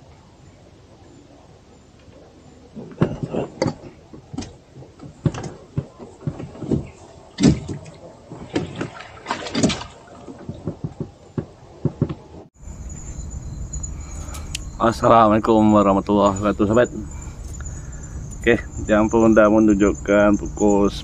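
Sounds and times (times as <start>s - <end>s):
gear knocking in a boat: 2.8s - 12.4s.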